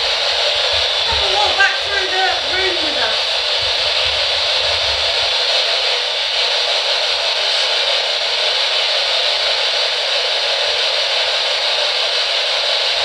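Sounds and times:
loud static hiss: 0.0s - 13.0s.

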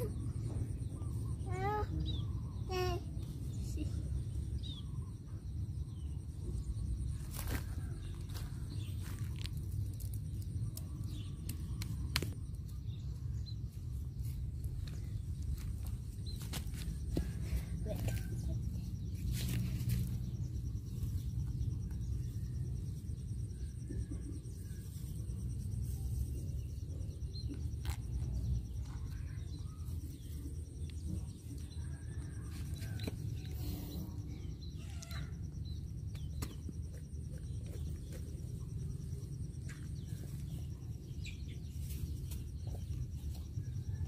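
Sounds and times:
steady low rumble: 2.0s - 44.0s.

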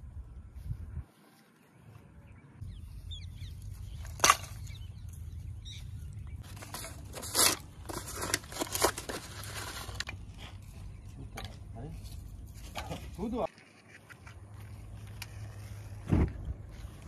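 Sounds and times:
wooden sticks clattering on stones: 3.7s - 5.3s, 6.4s - 14.1s.

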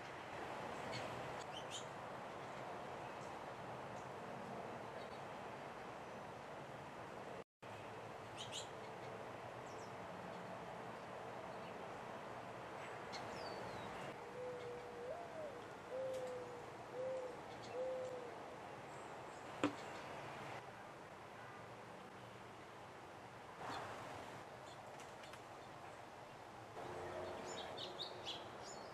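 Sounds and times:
small birds chirping: 8.3s - 10.5s, 12.9s - 18.3s
dove cooing: 14.2s - 18.4s.

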